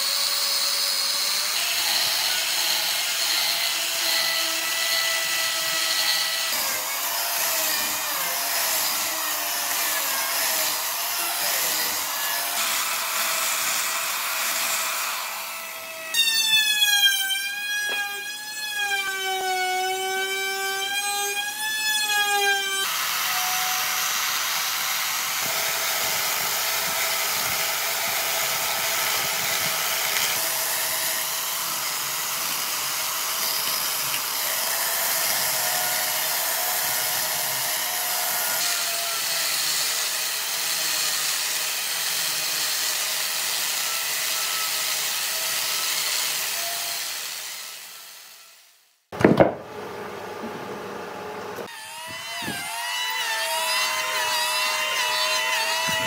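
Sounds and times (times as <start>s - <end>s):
power tool whining: 51.3s - 56.0s.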